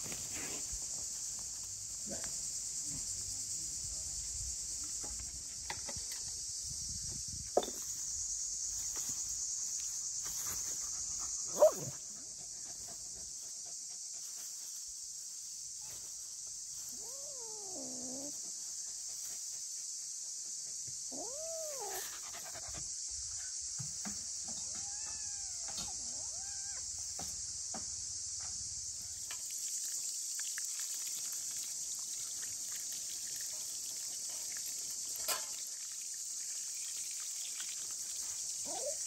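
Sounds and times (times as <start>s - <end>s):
insects droning: 0.0s - 39.0s
dog yelping: 11.5s - 11.9s, 16.9s - 18.3s, 21.1s - 22.4s, 24.7s - 26.8s
dog whining cries: 21.1s - 22.1s, 24.6s - 26.8s.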